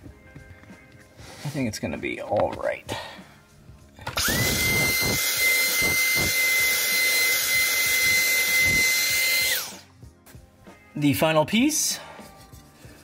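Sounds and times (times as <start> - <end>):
stick vacuum motor whine: 4.1 - 9.8.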